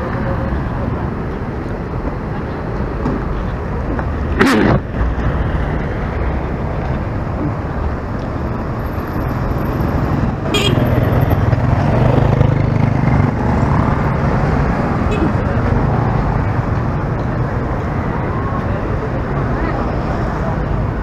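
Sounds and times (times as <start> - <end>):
street traffic passing: 0.0 - 21.0
car horn toot: 10.5 - 10.9
motorcycle engine running close: 10.5 - 14.2.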